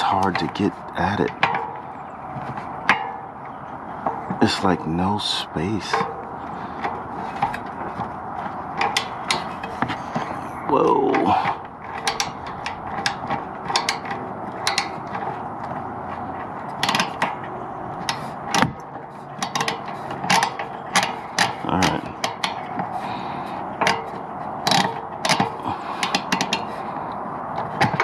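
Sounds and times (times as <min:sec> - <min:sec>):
metallic clicks and knocks: 0:00.0 - 0:03.4, 0:05.8 - 0:10.4, 0:11.0 - 0:28.0
hand ratchet clicking: 0:11.2 - 0:15.3, 0:16.7 - 0:17.4, 0:18.0 - 0:22.9, 0:23.8 - 0:28.0.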